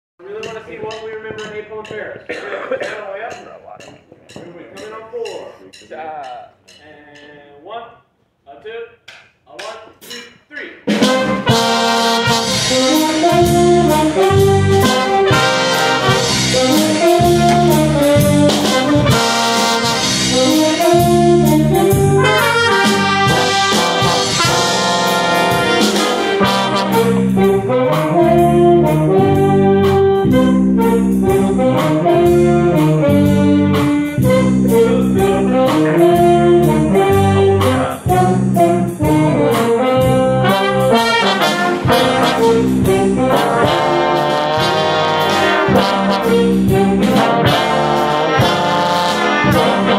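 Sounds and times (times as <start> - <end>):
brass band playing: 10.8 - 49.9
trombone close up: 10.9 - 49.9.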